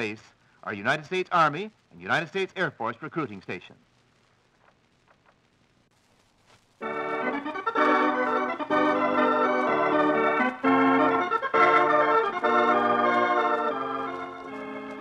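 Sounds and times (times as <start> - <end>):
organ chords: 6.8 - 15.0.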